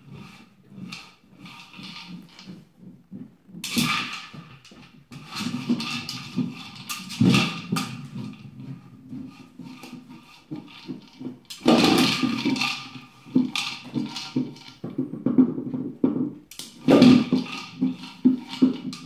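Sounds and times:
plastic toy clattering on wooden floor: 3.6s - 8.5s, 9.7s - 15.4s, 16.5s - 19.0s.

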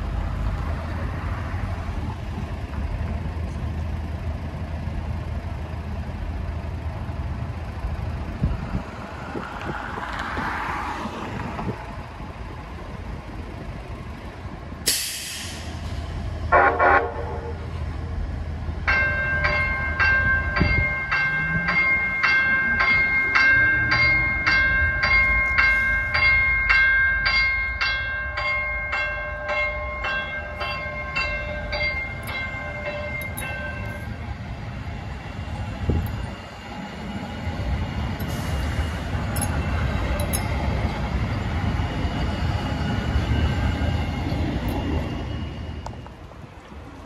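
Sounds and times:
railcar motors and wheels rumbling: 0.0s - 47.0s
train bell dinging: 18.8s - 34.4s, 37.9s - 46.2s.

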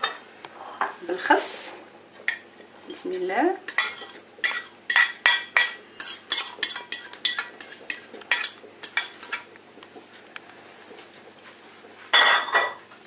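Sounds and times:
fork clinking on porcelain plate: 3.7s - 9.5s.

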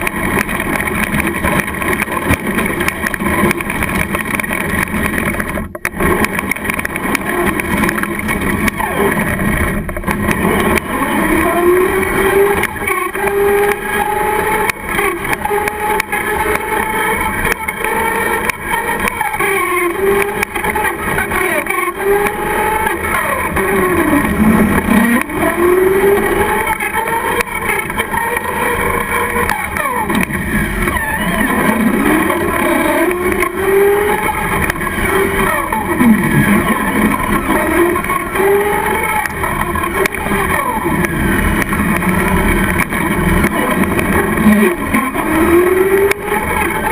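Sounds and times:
rc truck motor whining: 0.0s - 46.9s
road noise rushing: 0.0s - 46.9s.

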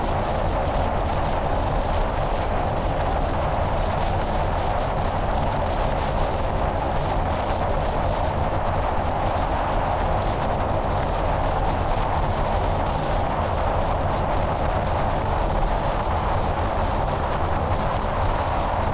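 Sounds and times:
deep rumble: 0.0s - 18.9s
wind and road noise: 0.0s - 18.9s.

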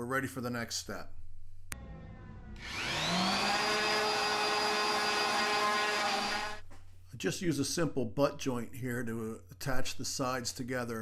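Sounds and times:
orbital sander running on wood: 1.8s - 6.6s.

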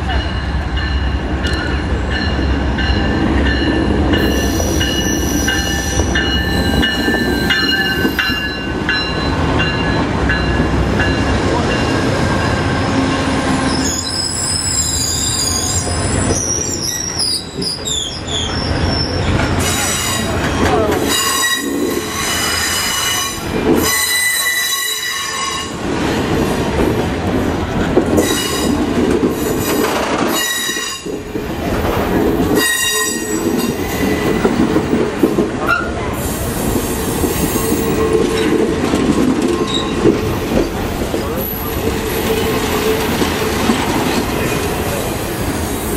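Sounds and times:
high squeal from train running gear: 4.1s - 8.6s, 13.6s - 25.8s, 28.2s - 28.8s, 29.5s - 31.1s, 32.6s - 34.5s, 35.7s - 38.5s, 39.5s - 40.4s
train wheels clattering over rails: 19.2s - 45.9s.

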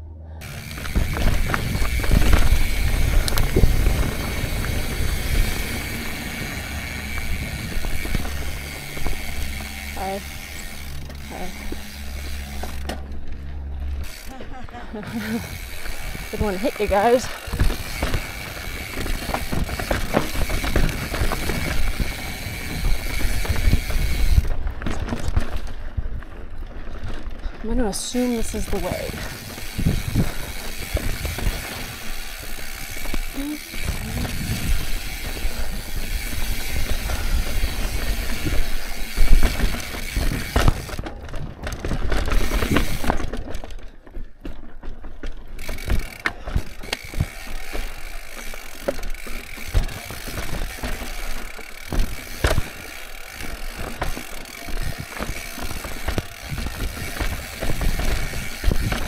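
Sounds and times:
bike rattling and knocking: 0.4s - 59.0s
tyres crunching on dirt: 0.4s - 59.0s
wind on microphone: 0.7s - 8.4s, 33.7s - 38.6s
rear hub ratcheting: 45.5s - 59.0s.

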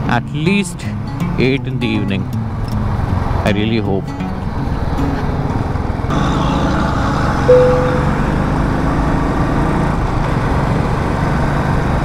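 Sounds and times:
wind and road noise: 0.0s - 12.0s
horn beep: 7.5s - 8.4s.

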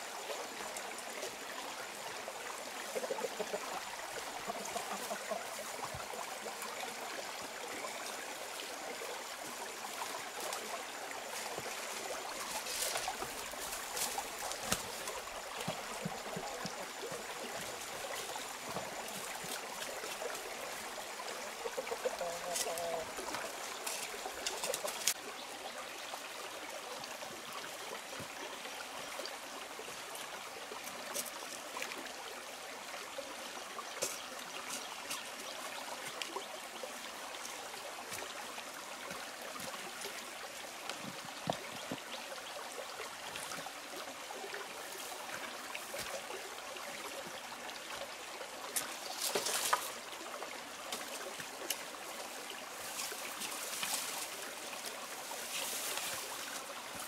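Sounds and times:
stream trickling over rocks: 0.0s - 57.0s.

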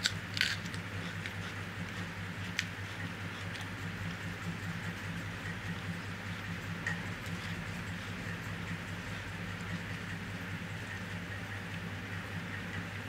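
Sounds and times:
low hum: 0.0s - 13.0s.

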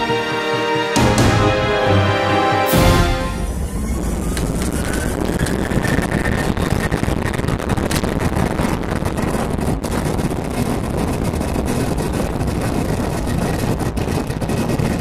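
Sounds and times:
boat engine rushing: 0.0s - 7.5s
wind buffeting microphone: 3.5s - 15.0s.

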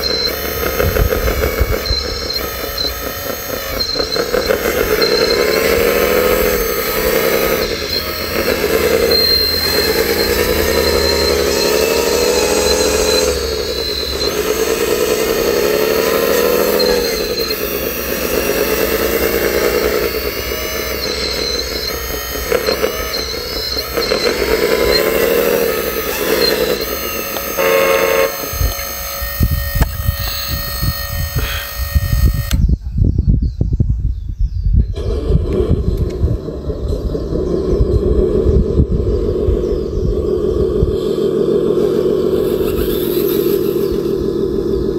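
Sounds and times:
model loader motors whining: 0.0s - 32.8s, 34.9s - 44.9s.

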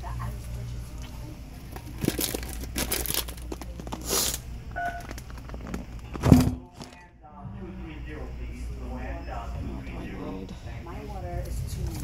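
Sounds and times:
rustling and crinkling handling: 1.0s - 4.4s.

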